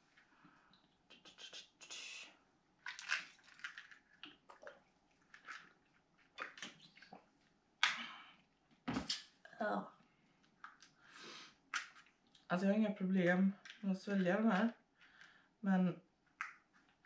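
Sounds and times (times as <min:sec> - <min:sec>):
bottle and pill box sloshing: 0:02.8 - 0:07.2
person gulping: 0:04.2 - 0:05.8.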